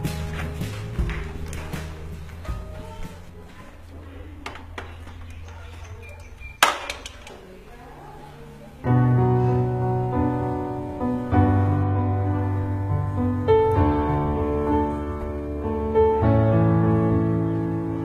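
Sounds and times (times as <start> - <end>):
piano music with sustained chords: 8.5 - 18.0.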